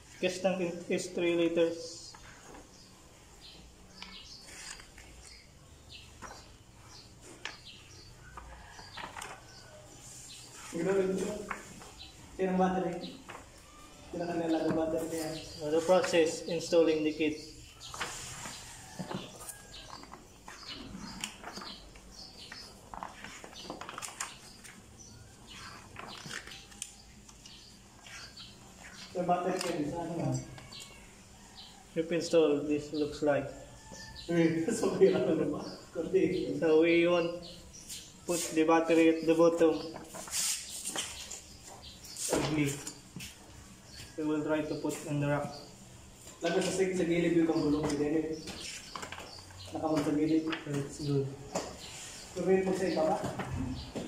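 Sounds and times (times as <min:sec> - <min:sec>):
birds chirping: 0:00.0 - 0:54.0
paper pages rustling: 0:04.4 - 0:05.4, 0:10.6 - 0:11.9, 0:17.9 - 0:20.6, 0:22.5 - 0:24.9, 0:25.5 - 0:29.9, 0:39.8 - 0:41.5.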